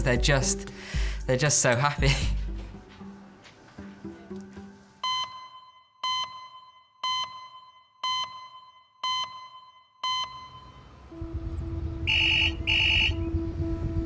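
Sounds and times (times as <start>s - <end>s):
short electronic beeps: 5.0s - 10.9s.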